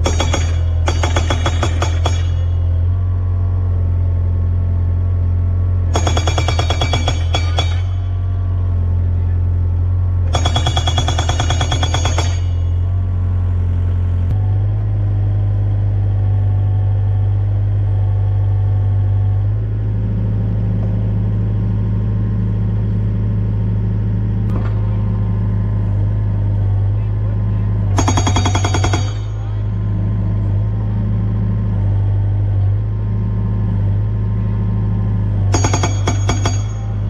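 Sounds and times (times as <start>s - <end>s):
hydraulic breaker hammering post: 0.0s - 2.8s, 5.9s - 8.2s, 10.3s - 12.8s, 27.9s - 29.8s, 35.5s - 37.0s
diesel engine running: 0.0s - 37.0s.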